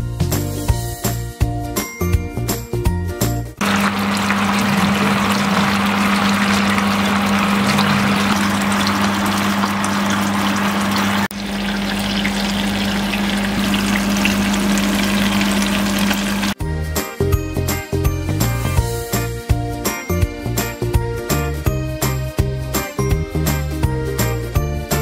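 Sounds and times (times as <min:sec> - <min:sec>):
sauce sizzling in frying pan: 0:03.6 - 0:16.6.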